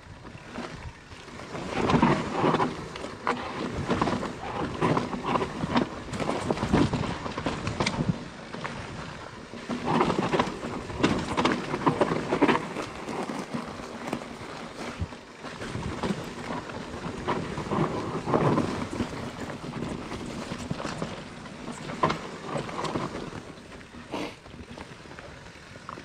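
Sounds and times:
bike rattling and knocking: 1.5s - 8.2s, 9.7s - 23.5s.

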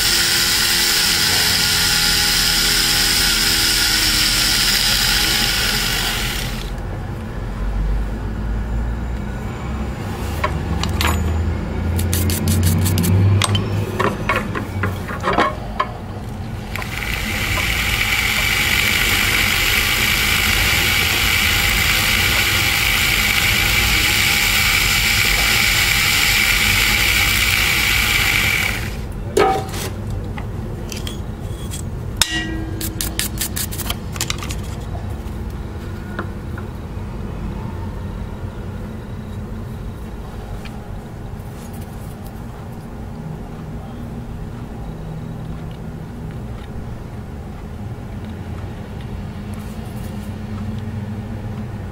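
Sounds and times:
rotary carving tool running: 0.0s - 6.8s, 12.0s - 13.1s, 16.5s - 29.1s
hand tool scraping wax: 12.0s - 13.2s, 32.4s - 34.7s.

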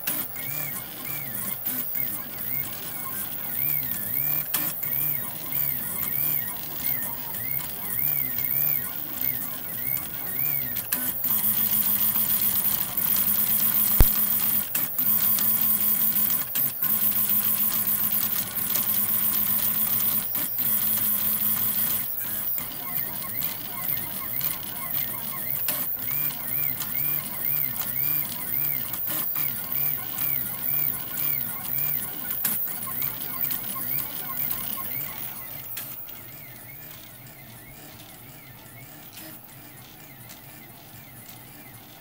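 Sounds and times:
stepper motors whining: 0.0s - 42.0s
sharp click: 13.9s - 14.4s.

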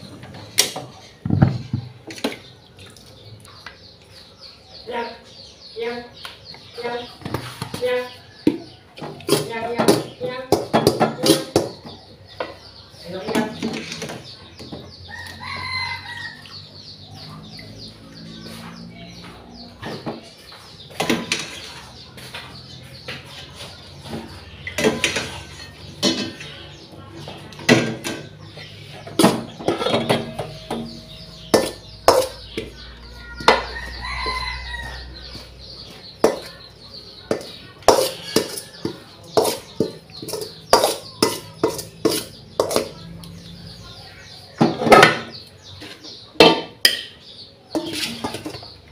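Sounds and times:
rooster crowing: 15.1s - 16.5s, 33.3s - 35.3s
metal spoon scraping metal bowl: 29.2s - 32.6s, 37.3s - 43.0s, 47.7s - 48.6s.

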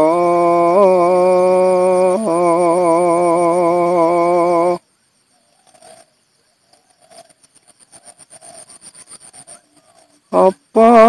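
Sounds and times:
man singing unaccompanied: 0.0s - 4.8s, 10.3s - 11.0s.

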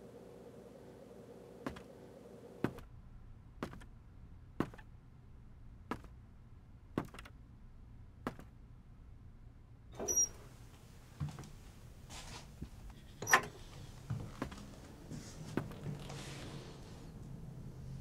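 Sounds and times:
footsteps on hard floor: 11.2s - 12.8s, 13.7s - 16.7s.

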